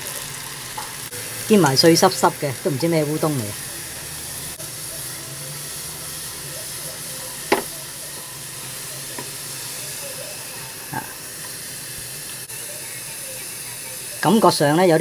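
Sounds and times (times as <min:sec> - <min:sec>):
noodles sizzling in hot oil: 0:00.0 - 0:15.0
utensil knocking on pan: 0:07.5 - 0:07.7.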